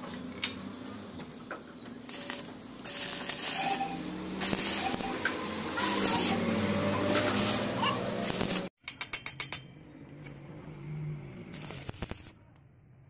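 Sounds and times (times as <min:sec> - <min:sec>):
welding arc crackling and hissing: 0:02.0 - 0:08.7, 0:11.5 - 0:12.4.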